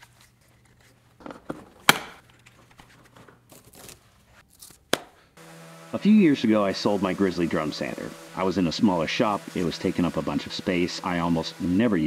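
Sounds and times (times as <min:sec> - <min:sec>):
rustling and crinkling: 0:00.0 - 0:04.8.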